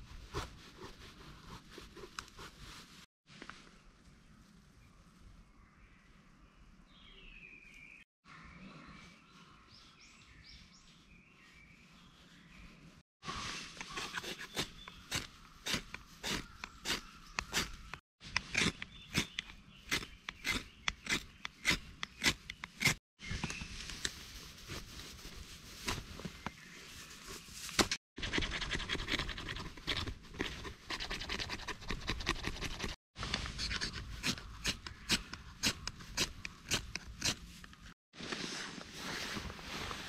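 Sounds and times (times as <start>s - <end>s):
knife scraping fire-starter rod: 13.7s - 23.0s, 32.1s - 37.9s
knife shaving wood: 13.8s - 23.0s, 28.6s - 37.6s.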